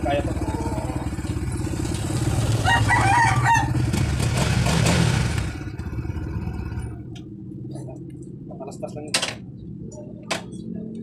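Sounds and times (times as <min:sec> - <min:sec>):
motorcycle engine running: 0:00.0 - 0:07.1
rooster crowing: 0:02.6 - 0:03.8.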